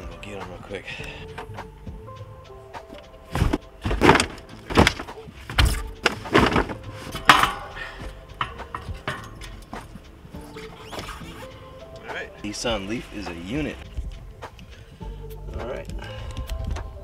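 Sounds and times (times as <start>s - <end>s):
car wheels thudding into cargo area: 3.2s - 10.0s.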